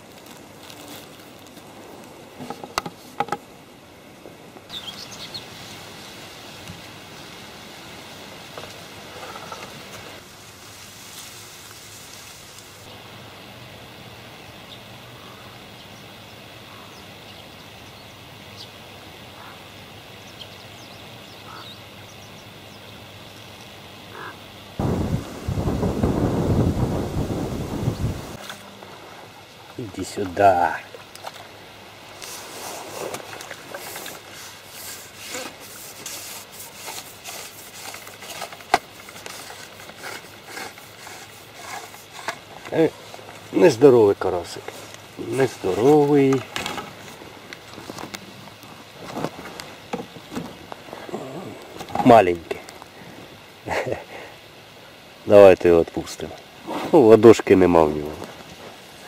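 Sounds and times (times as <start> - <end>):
bird chirps: 4.7 - 5.4
waterfowl calls: 19.3 - 19.7, 21.4 - 21.8, 24.1 - 24.4
wind gust on microphone: 24.8 - 28.4
fishing tackle rubbing and scraping: 32.2 - 43.3.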